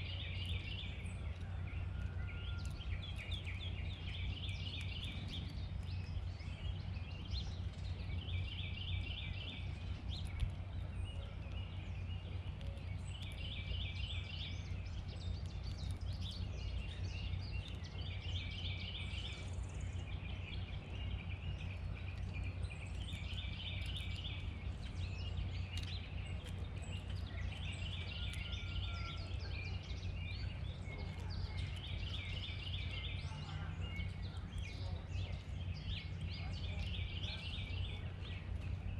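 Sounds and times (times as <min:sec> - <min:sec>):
songbird singing: 0:00.0 - 0:38.9
steady low rumble: 0:00.0 - 0:38.9.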